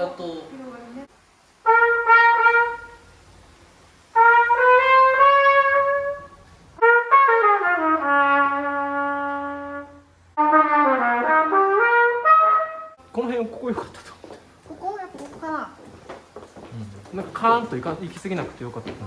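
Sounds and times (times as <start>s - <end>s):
brass instrument playing held notes: 1.6s - 3.2s, 4.1s - 13.0s.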